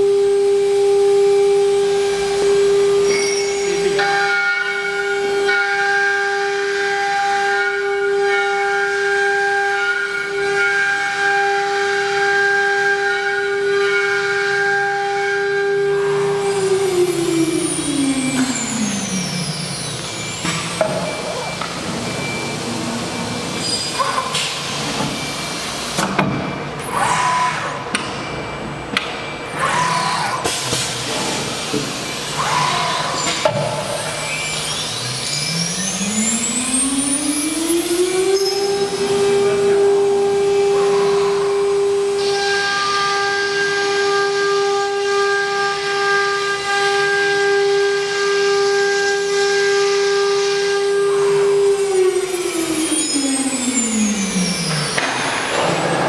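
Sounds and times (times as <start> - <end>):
router spindle whining: 29.5 - 56.0.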